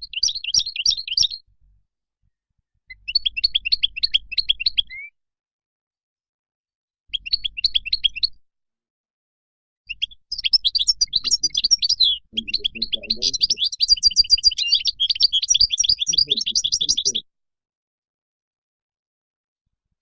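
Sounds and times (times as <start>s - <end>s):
finch twittering song: 0.0s - 1.4s, 2.9s - 5.2s, 7.1s - 8.4s, 9.9s - 17.2s.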